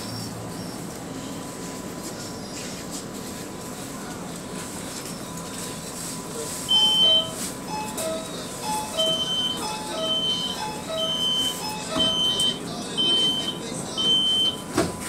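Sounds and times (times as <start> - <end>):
train carriage hum: 0.0 - 15.0
electronic warning beeps: 6.6 - 14.7.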